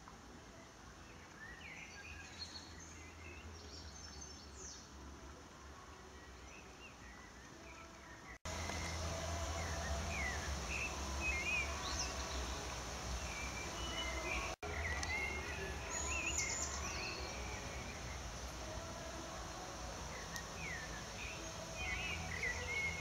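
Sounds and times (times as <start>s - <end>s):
small birds chirping: 6.1s - 23.0s
steady low rumble: 8.5s - 23.0s.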